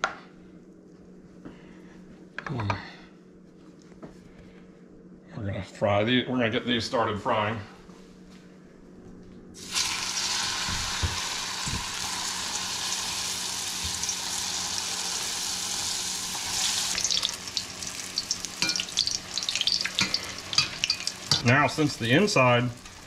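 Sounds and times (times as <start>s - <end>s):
hot oil sizzling: 9.6s - 23.0s.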